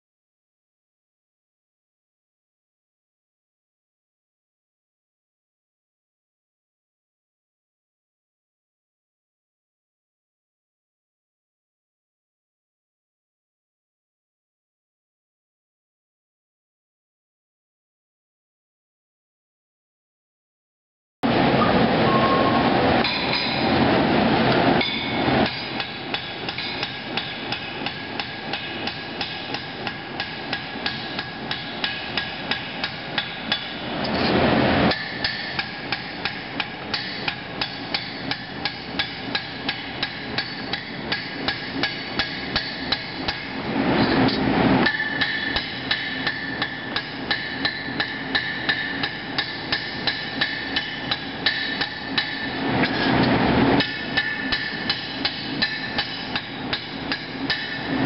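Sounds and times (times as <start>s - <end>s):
hammer striking metal on anvil: 23.0s - 23.8s, 24.8s - 34.3s, 34.9s - 43.6s, 44.3s - 53.2s, 53.8s - 58.0s.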